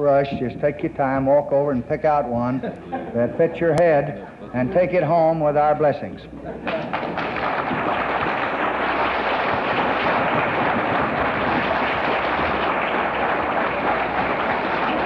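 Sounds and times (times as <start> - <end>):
audience applauding: 6.6 - 15.0.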